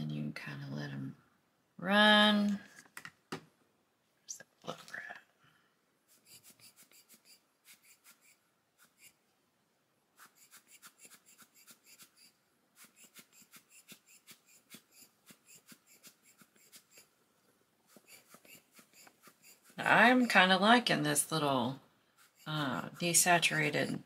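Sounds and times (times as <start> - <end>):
rubber bulb blower puffs: 10.2 - 17.1.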